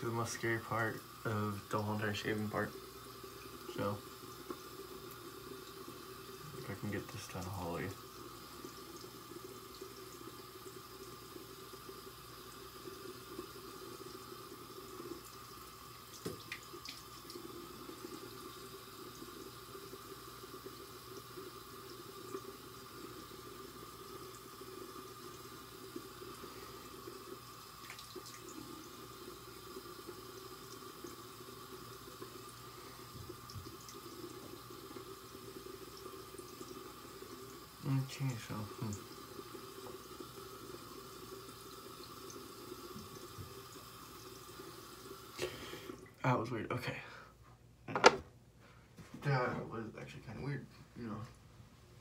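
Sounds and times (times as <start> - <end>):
tap running into sink: 16.2 - 17.0, 33.1 - 33.8, 47.9 - 48.3.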